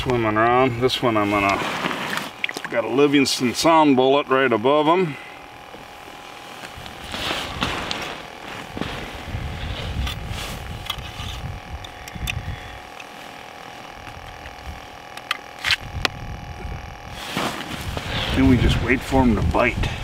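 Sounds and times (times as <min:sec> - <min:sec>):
jacket rustling: 0:05.8 - 0:11.7.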